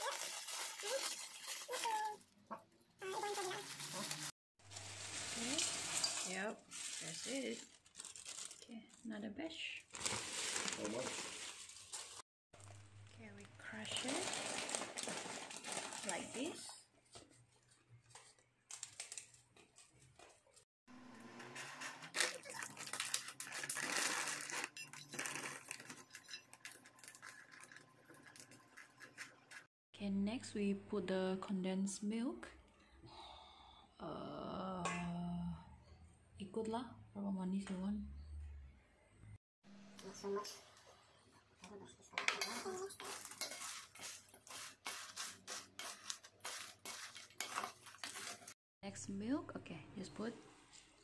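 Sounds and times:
plastic packet crinkling: 0:00.0 - 0:02.3, 0:03.0 - 0:08.8, 0:09.9 - 0:16.6, 0:22.0 - 0:28.6
spoon scraping metal bowl: 0:24.4 - 0:29.7, 0:40.0 - 0:40.8, 0:42.2 - 0:48.6.

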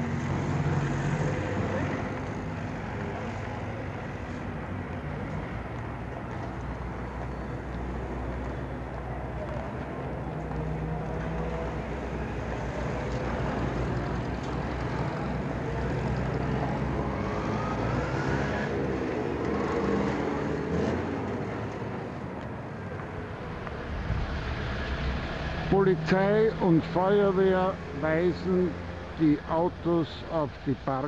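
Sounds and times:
road noise: 0:00.0 - 0:31.0
vehicle engine running: 0:19.4 - 0:31.0.

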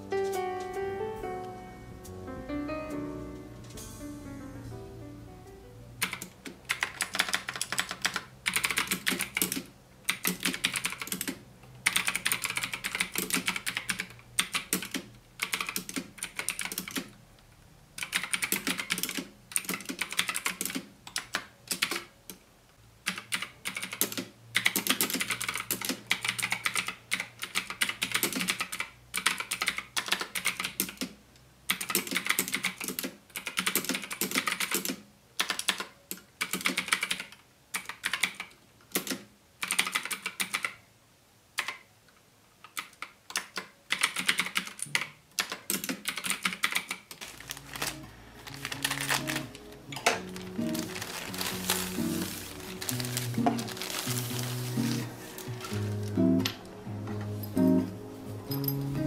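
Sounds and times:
mechanical keyboard typing: 0:06.0 - 0:17.2, 0:18.0 - 0:22.1, 0:23.0 - 0:40.8, 0:41.6 - 0:41.8, 0:42.7 - 0:55.0.

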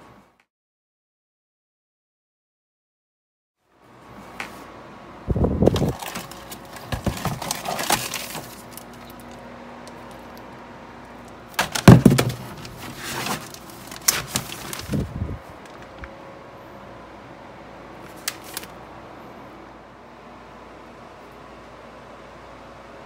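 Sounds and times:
paper and plastic rustling: 0:05.6 - 0:09.4, 0:11.6 - 0:16.0, 0:18.0 - 0:18.8
knocks in cardboard box: 0:11.6 - 0:13.4.

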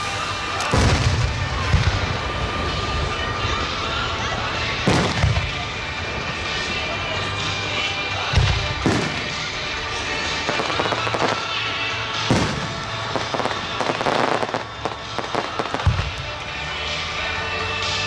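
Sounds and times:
firework booms: 0:00.0 - 0:03.6, 0:04.8 - 0:06.7, 0:08.3 - 0:11.6, 0:12.2 - 0:16.3
firework crackling: 0:00.0 - 0:18.0.

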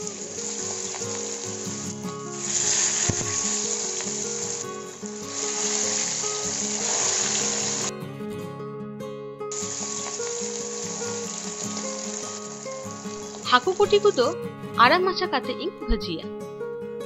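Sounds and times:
fish sizzling in hot oil: 0:00.0 - 0:07.9, 0:09.5 - 0:14.4.

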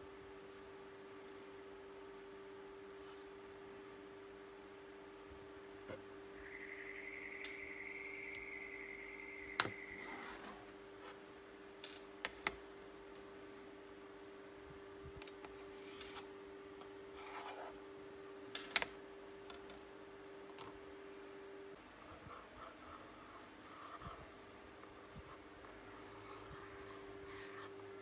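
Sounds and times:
faint high whine: 0:00.0 - 0:18.4, 0:19.0 - 0:28.0
steady low hum: 0:00.0 - 0:28.0.

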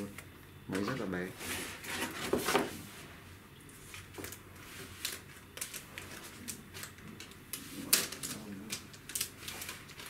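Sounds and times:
packaging crinkling: 0:04.1 - 0:10.0.

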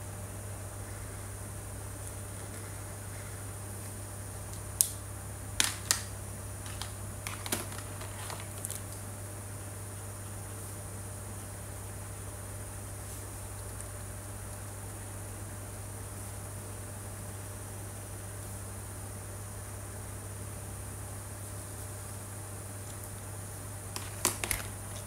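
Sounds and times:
low electrical hum and hiss: 0:00.0 - 0:25.0
plastic marker caps clicking: 0:24.0 - 0:24.7.

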